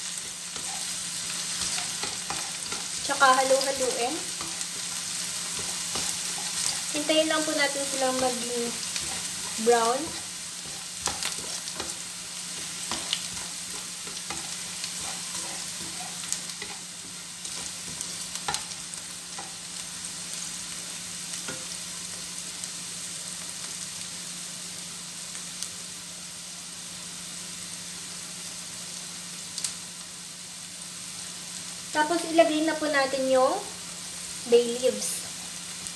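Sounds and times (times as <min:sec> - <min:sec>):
spatula scraping a pan: 0:00.0 - 0:19.7
onion sizzling in hot oil: 0:00.0 - 0:35.9.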